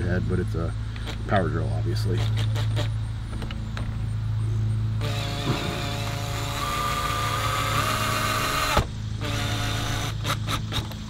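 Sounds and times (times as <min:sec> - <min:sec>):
steady low hum: 0:00.0 - 0:11.0
cordless drill motor whining: 0:05.0 - 0:11.0.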